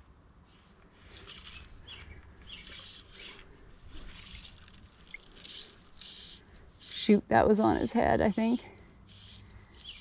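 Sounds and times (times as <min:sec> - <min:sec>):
faint bird chirps: 0:09.1 - 0:10.0.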